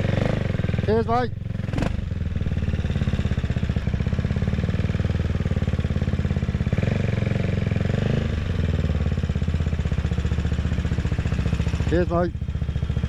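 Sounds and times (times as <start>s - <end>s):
motorcycle engine thumping: 0.0s - 13.0s.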